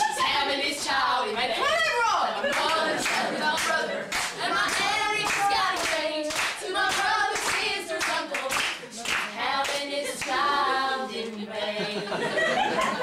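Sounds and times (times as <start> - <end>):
women singing together: 0.0 - 13.0
hand claps: 2.5 - 10.4.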